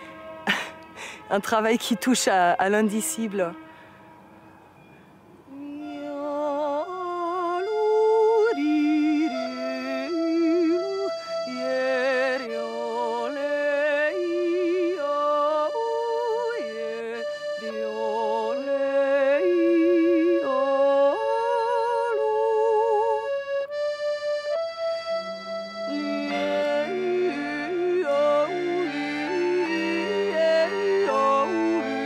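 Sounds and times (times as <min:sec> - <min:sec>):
accordion chords: 0:00.0 - 0:32.0
woman yodeling: 0:05.5 - 0:23.3, 0:25.9 - 0:32.0.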